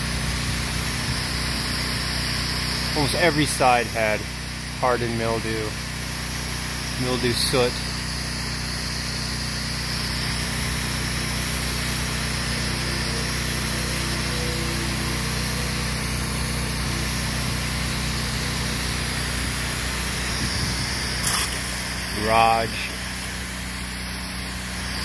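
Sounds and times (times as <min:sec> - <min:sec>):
pressure washer engine running: 0:00.0 - 0:25.0
high-pressure water spray hissing: 0:06.2 - 0:25.0.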